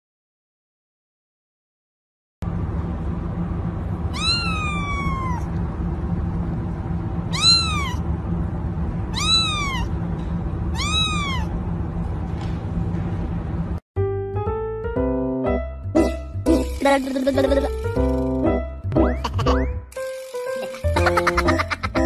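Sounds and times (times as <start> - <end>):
steady low hum: 2.4 - 13.8
kitten mewing: 4.1 - 5.5, 7.3 - 8.0, 9.1 - 9.9, 10.7 - 11.5.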